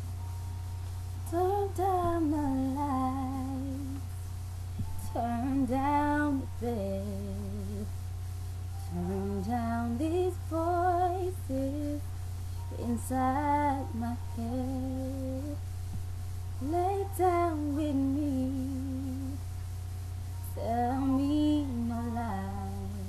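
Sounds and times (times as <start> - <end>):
low hum: 0.0 - 23.0
woman singing unaccompanied: 1.2 - 4.1, 4.8 - 7.9, 8.8 - 15.6, 16.6 - 19.4, 20.4 - 23.0.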